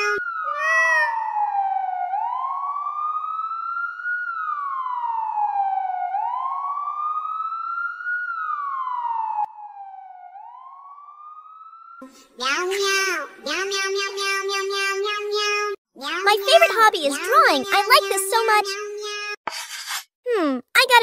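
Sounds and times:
wailing police siren: 0.0s - 12.0s.

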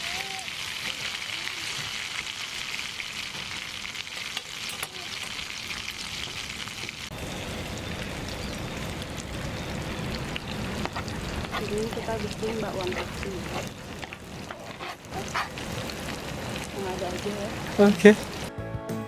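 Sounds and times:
batter sizzling in hot oil: 0.0s - 18.5s.

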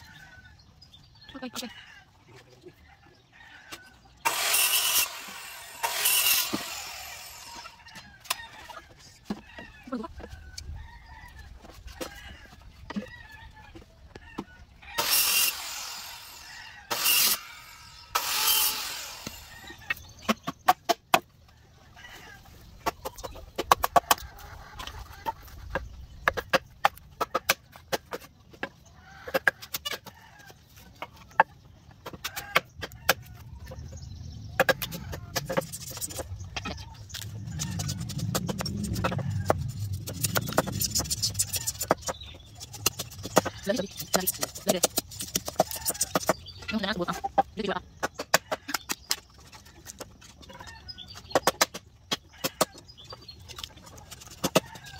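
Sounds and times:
chickens clucking: 19.5s - 54.9s
low rumble: 33.8s - 42.4s.

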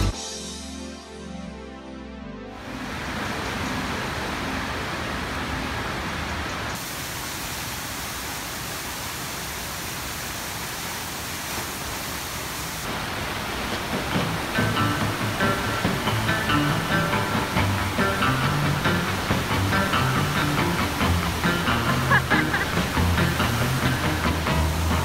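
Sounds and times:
music: 0.0s - 4.5s, 14.0s - 25.0s
water rushing and splashing: 2.5s - 25.0s.

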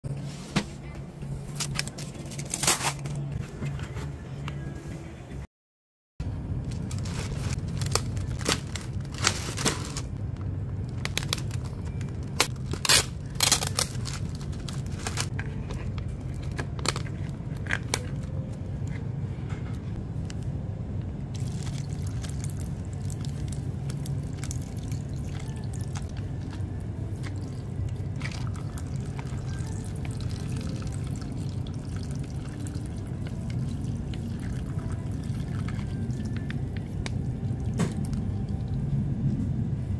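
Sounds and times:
steady low hum: 6.2s - 39.9s
plastic cup and pouch crackling: 6.7s - 10.1s, 10.8s - 18.6s, 21.4s - 38.3s.

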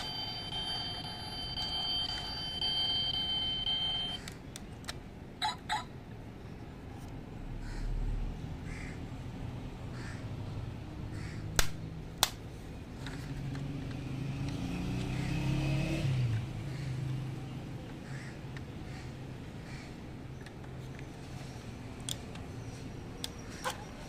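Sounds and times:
passing vehicle engine hum: 12.8s - 18.3s.

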